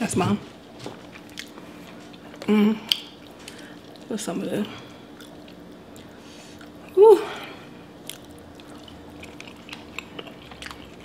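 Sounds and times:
person chewing with mouth clicks: 0:01.1 - 0:04.1, 0:05.1 - 0:06.9, 0:08.0 - 0:11.0.

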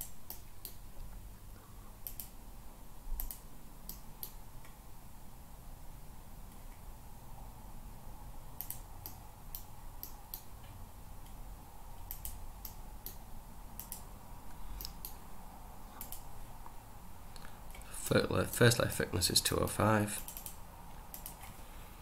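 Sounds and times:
computer mouse clicking: 0:00.0 - 0:00.8, 0:02.0 - 0:02.4, 0:03.2 - 0:04.8, 0:08.6 - 0:10.5, 0:12.0 - 0:13.2, 0:13.8 - 0:14.1, 0:14.8 - 0:15.2, 0:16.0 - 0:16.3, 0:20.2 - 0:21.5.

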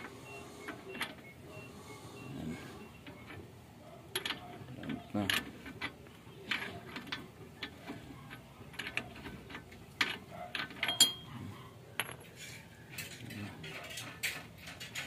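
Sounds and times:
metal clinks: 0:10.0 - 0:11.3, 0:11.9 - 0:15.0.

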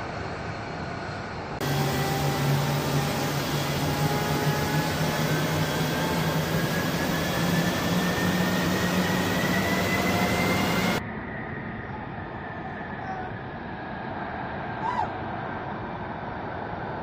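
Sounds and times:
jet engine running: 0:00.0 - 0:13.0.

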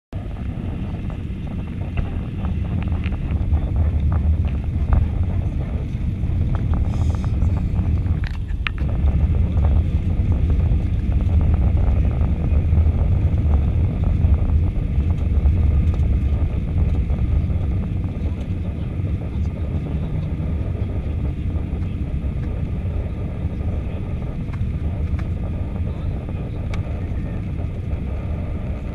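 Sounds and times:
aircraft cabin engine rumble: 0:00.1 - 0:28.9.

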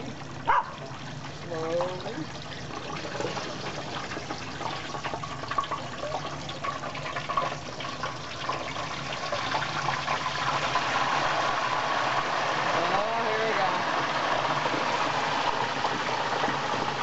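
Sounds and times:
hot oil bubbling and crackling: 0:00.0 - 0:17.0.

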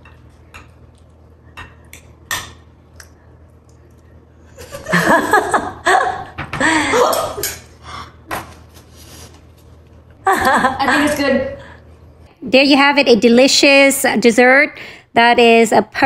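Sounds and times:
girls laughing: 0:04.6 - 0:07.4, 0:10.2 - 0:11.4.

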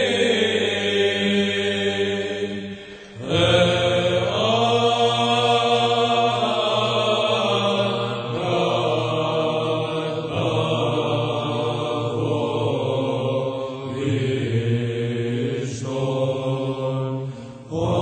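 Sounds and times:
psalm chanting in long notes: 0:00.0 - 0:18.0.

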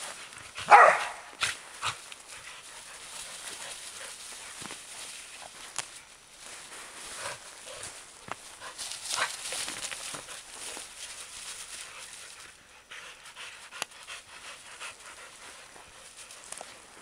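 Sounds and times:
dogs trotting through dry leaves: 0:00.0 - 0:12.7, 0:14.4 - 0:17.0
dog panting: 0:01.8 - 0:05.6, 0:07.1 - 0:16.8.

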